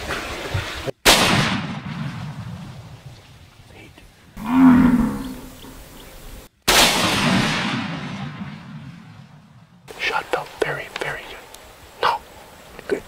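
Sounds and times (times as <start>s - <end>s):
rifle shot with echo: 1.0s - 2.7s, 6.7s - 9.6s
buffalo bellowing: 4.4s - 6.0s.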